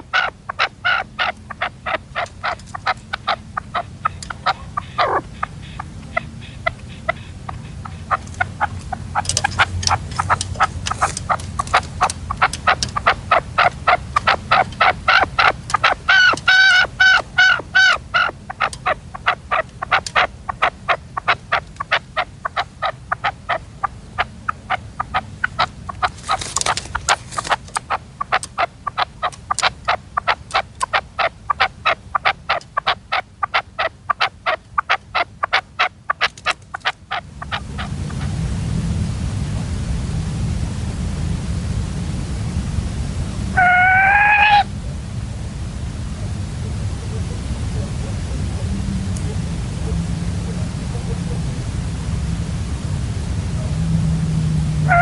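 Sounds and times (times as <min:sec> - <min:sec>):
partridge calling: 0:00.0 - 0:38.3, 0:43.5 - 0:44.7.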